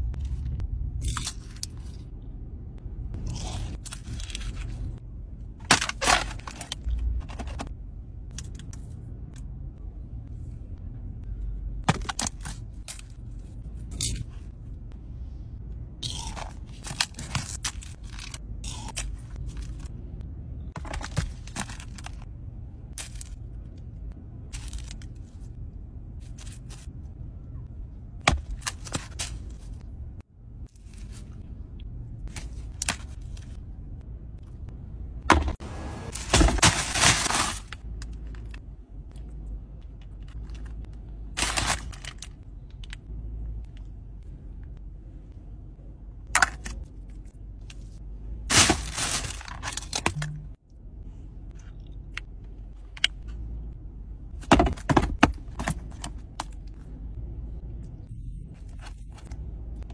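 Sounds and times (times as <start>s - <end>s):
crunchy bites crackling: 16.0s - 19.1s.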